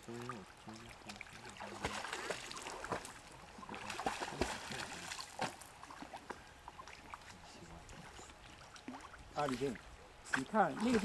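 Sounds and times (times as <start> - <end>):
dog splashing in water: 1.1 - 7.4.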